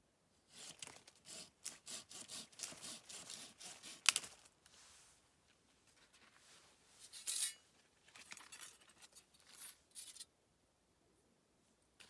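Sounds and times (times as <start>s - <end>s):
blade cutting dry stick: 0.5s - 4.5s.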